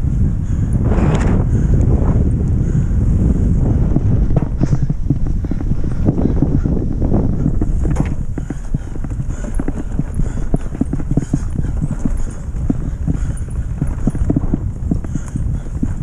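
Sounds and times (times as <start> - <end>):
low rumble of tyres: 0.0 - 16.0
wind on microphone: 0.0 - 16.0
mountain bike rattling and knocking: 3.8 - 16.0.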